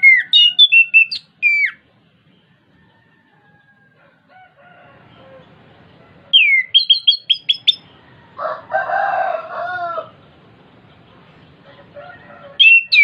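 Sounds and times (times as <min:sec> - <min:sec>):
harsh bird call: 0:00.0 - 0:01.8, 0:06.3 - 0:08.0, 0:12.5 - 0:13.0
thrush singing whistled notes: 0:00.0 - 0:01.8, 0:06.3 - 0:08.0, 0:12.6 - 0:13.0.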